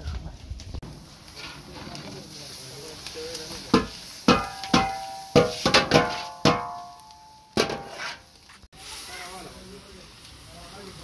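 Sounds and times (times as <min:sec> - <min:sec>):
metal colander clanging on pot rim: 0:03.7 - 0:08.2.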